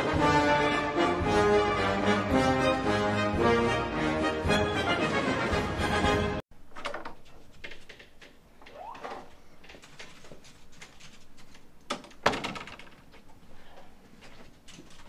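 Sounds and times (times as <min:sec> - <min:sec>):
footsteps: 0:07.2 - 0:11.7, 0:13.0 - 0:15.0.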